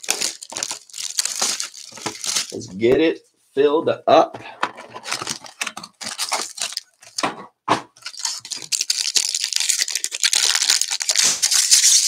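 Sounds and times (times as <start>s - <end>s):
foil wrapper crinkling and tearing: 0.0s - 2.6s, 4.9s - 7.2s, 8.0s - 12.0s.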